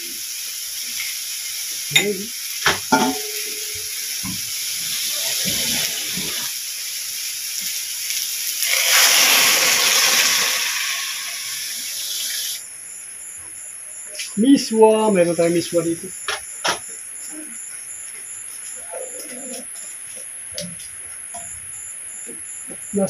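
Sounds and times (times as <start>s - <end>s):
water boiling into steam hiss: 0.0s - 12.7s
vegetable sizzling in a wok: 0.0s - 14.0s
metal ladle clinking on pan: 2.9s - 3.9s.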